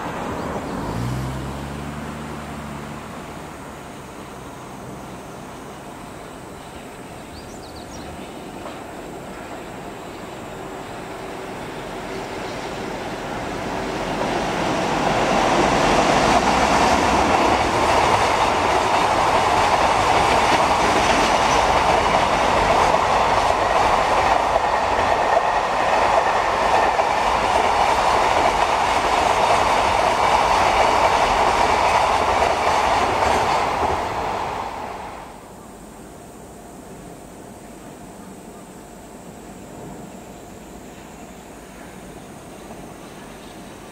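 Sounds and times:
train wheels clattering on rails: 0:08.1 - 0:09.9, 0:11.3 - 0:35.1.

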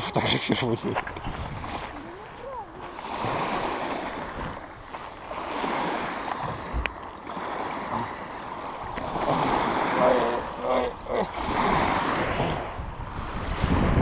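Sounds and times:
small waves breaking on shore: 0:00.0 - 0:14.0.

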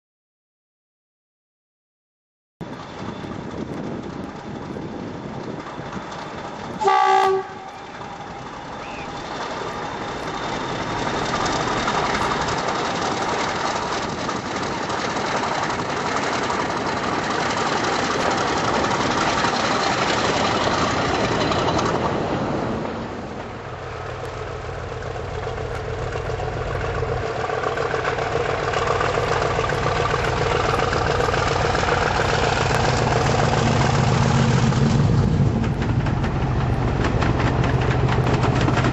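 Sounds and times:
approaching train engine drone: 0:02.6 - 0:38.9
diesel locomotive engine working: 0:02.6 - 0:38.9
locomotive horn: 0:06.8 - 0:09.1.

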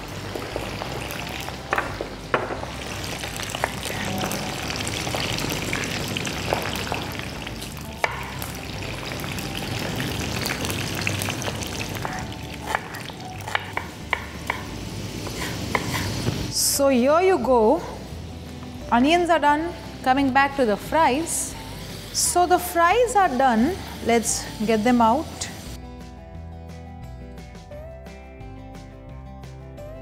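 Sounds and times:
fries sizzling in hot oil: 0:00.0 - 0:16.5, 0:20.7 - 0:25.8
knife chopping on wooden board: 0:08.0 - 0:08.3, 0:12.0 - 0:16.1.

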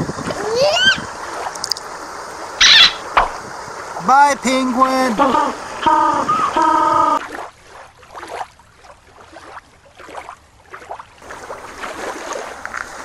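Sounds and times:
water lapping at shore: 0:00.0 - 0:13.0
faint splashes: 0:05.5 - 0:13.0.

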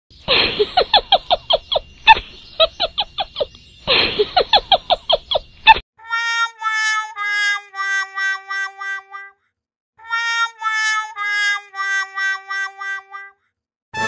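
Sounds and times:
tune of held notes: 0:10.0 - 0:13.3.

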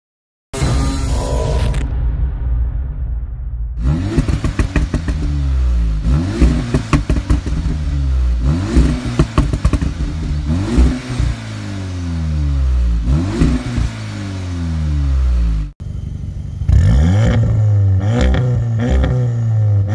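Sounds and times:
exhaust crackles and pops: 0:03.8 - 0:08.0, 0:08.6 - 0:10.9
car engine revving: 0:03.8 - 0:15.7, 0:16.4 - 0:19.9.

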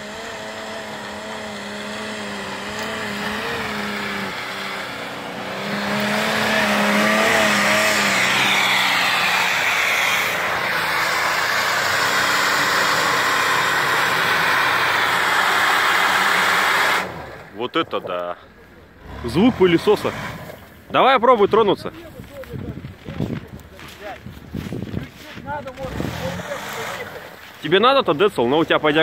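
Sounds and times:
car engine revving: 0:00.0 - 0:21.0, 0:25.6 - 0:27.6
tyres spinning in snow: 0:00.0 - 0:29.0.

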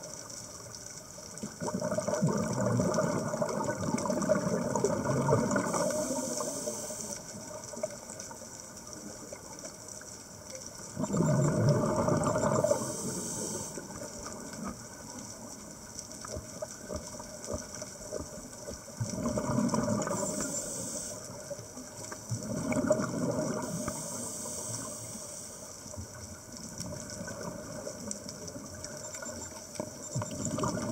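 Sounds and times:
underwater noise: 0:00.0 - 0:30.9
exhaled bubbles rushing: 0:01.4 - 0:06.6, 0:10.9 - 0:14.8, 0:19.0 - 0:20.5, 0:22.3 - 0:24.0, 0:30.1 - 0:30.9
regulator inhale hiss: 0:05.6 - 0:07.4, 0:12.6 - 0:14.1, 0:20.0 - 0:21.5, 0:23.6 - 0:26.0.

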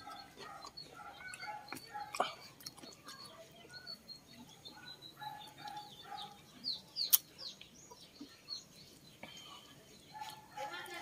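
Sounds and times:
birds clucking and chirping: 0:00.0 - 0:11.0.

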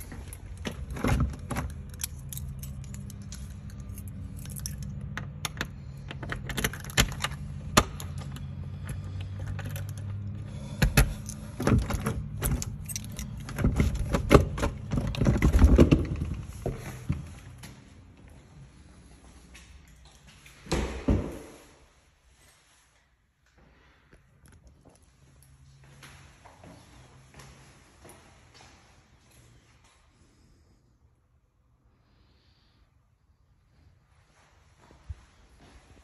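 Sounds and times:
keys jangling: 0:00.0 - 0:15.2
low steady hum: 0:00.0 - 0:36.0
door lock clicking and rattling: 0:00.2 - 0:08.4, 0:10.8 - 0:16.1.

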